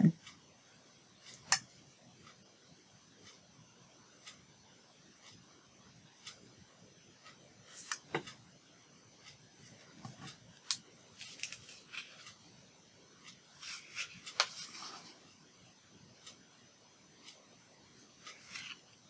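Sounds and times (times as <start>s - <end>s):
paper rustling and scraping: 11.2s - 12.3s, 13.6s - 15.2s, 18.3s - 18.8s.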